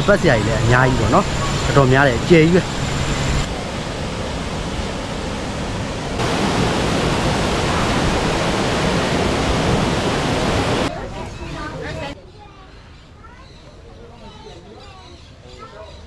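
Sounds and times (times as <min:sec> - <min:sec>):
waterfall rushing into pool: 0:00.3 - 0:10.9.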